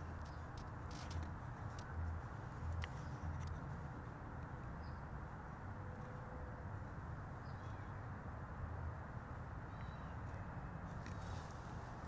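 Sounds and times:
faint bird chirps: 9.7 - 10.5.

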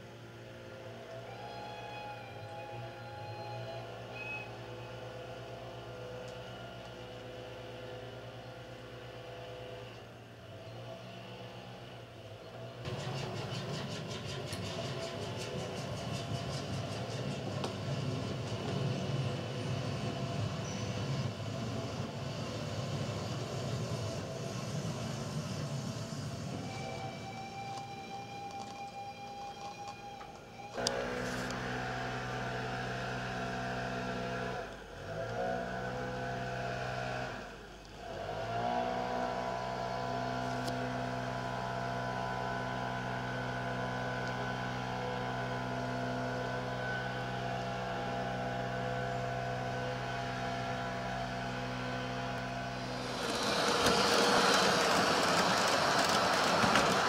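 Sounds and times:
model train mechanical hum: 0.0 - 57.0
loud rushing noise: 52.5 - 57.0.

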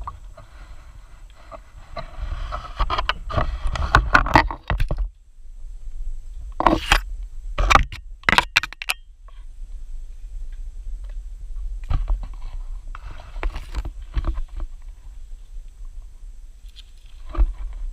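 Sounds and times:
low rumble of handling noise: 0.0 - 17.9
leaves and branches rustling: 9.4 - 17.9
twigs crackling: 16.6 - 17.9.

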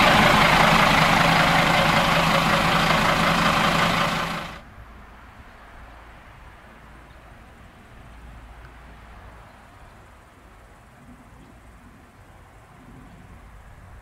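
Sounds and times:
railcar engine hum and running noise: 0.0 - 6.0
faint outdoor background: 0.0 - 14.0.

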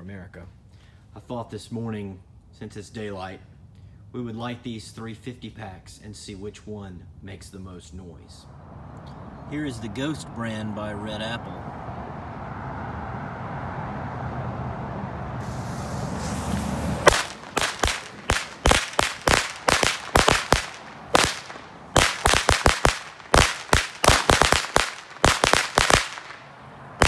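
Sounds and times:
fuse hissing: 15.4 - 17.0
firecrackers banging: 15.4 - 27.0.

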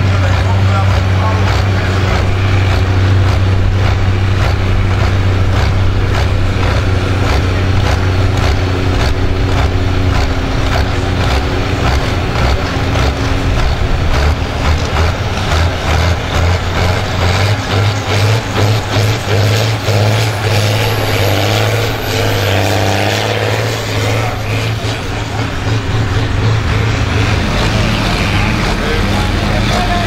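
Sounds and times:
tractor diesel engine revving: 0.0 - 30.0.

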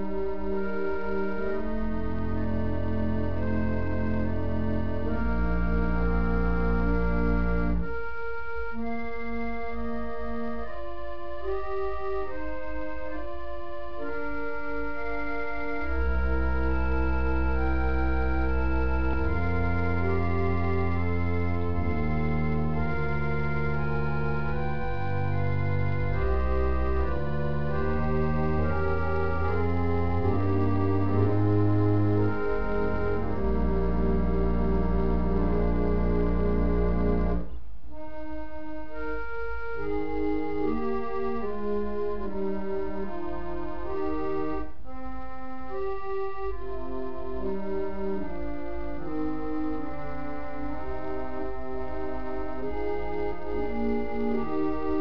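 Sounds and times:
organ music: 0.0 - 55.0.

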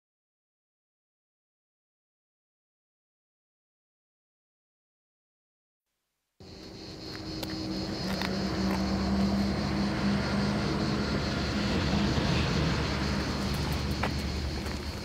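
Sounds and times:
aircraft engine humming: 6.4 - 15.0.

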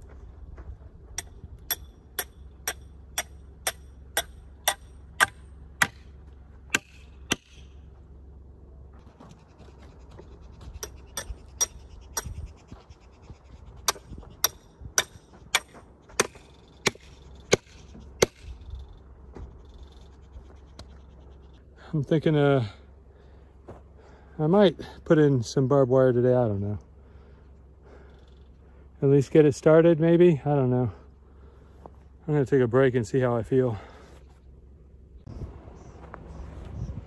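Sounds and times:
hammer striking metal pin: 1.2 - 6.0.

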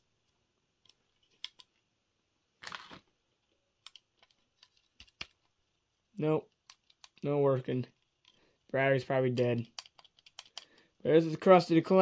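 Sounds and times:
plastic toy clicks: 9.6 - 10.8.

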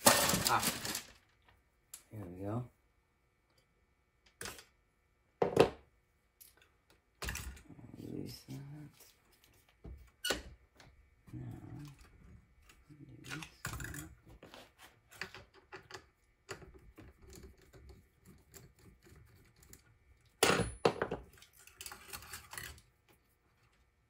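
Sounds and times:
small metal parts clicking and clattering: 20.6 - 22.9.

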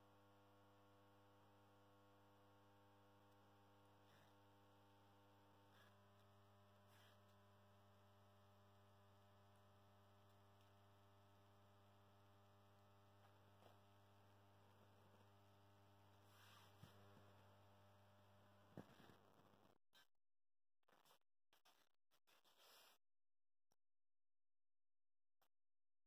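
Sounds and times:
faint mains hum: 0.0 - 19.8.

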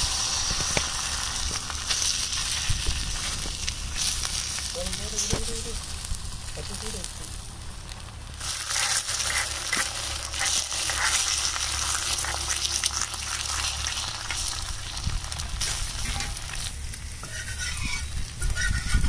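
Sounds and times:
egg cracking: 0.0 - 4.7, 7.3 - 19.0
eggs sizzling in hot oil: 0.0 - 19.0
oil ticking and spitting: 0.0 - 19.0.

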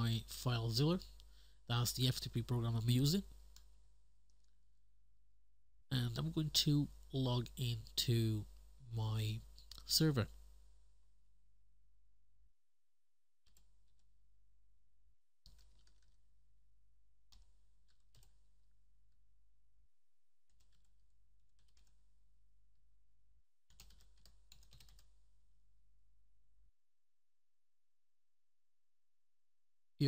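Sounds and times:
faint keyboard typing: 2.8 - 4.6, 13.4 - 14.1, 15.4 - 16.3, 17.3 - 18.5, 20.4 - 22.1, 23.7 - 25.2.

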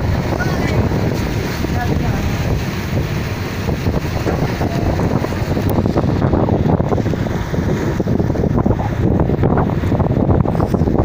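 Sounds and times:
waves washing: 0.0 - 11.0
wind buffeting microphone: 0.0 - 11.0.

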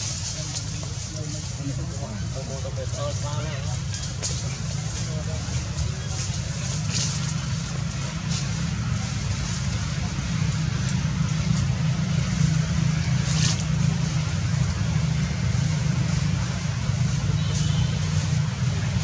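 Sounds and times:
low engine drone: 0.0 - 19.0.

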